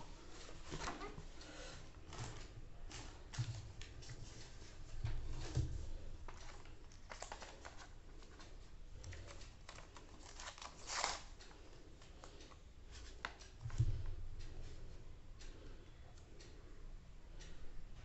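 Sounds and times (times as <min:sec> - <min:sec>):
plastic packaging rustle: 0:06.2 - 0:08.5, 0:09.2 - 0:11.4.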